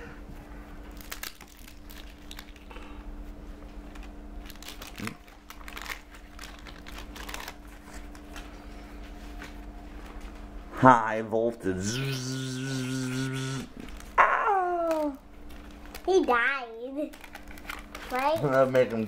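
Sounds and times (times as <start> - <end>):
faint steady hum: 0.0 - 19.0
paper wrappers crinkling: 0.9 - 2.8, 3.9 - 8.8, 13.8 - 19.0
stickers being shuffled: 3.9 - 8.8, 14.7 - 19.0.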